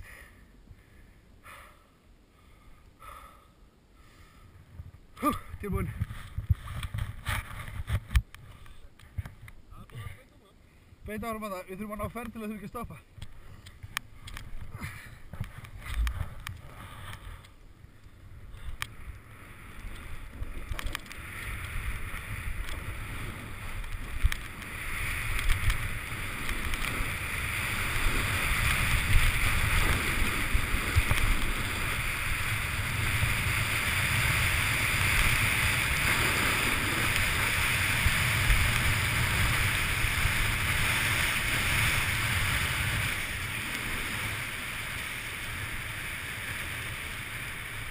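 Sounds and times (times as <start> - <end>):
snow hissing under snowboard: 19.2 - 47.9.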